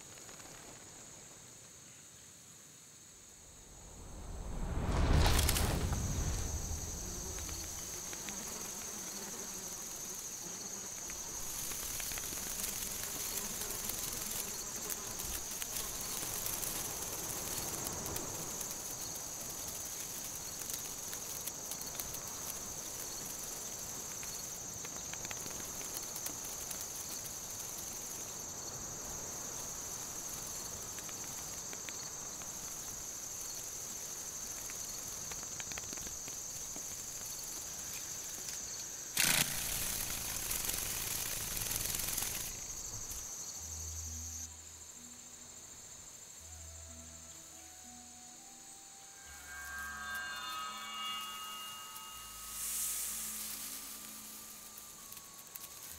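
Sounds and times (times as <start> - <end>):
insects chirring: 0.0 - 55.9
soft background hiss: 0.0 - 55.9
faint ticks: 7.2 - 43.2.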